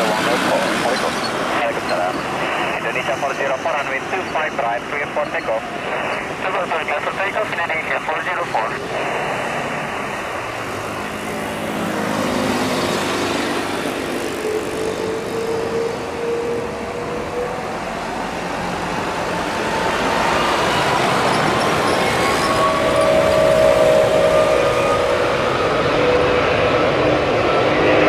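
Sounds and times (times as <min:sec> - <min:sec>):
jet engines spooling up: 0:00.0 - 0:11.6.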